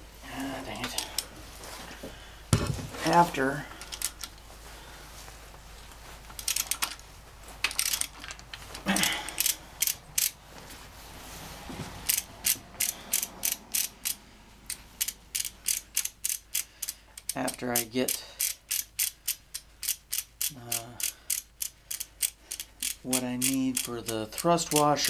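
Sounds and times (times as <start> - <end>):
ratchet wrench clicking: 6.4 - 7.0, 7.6 - 8.4, 9.3 - 10.4, 12.0 - 25.0.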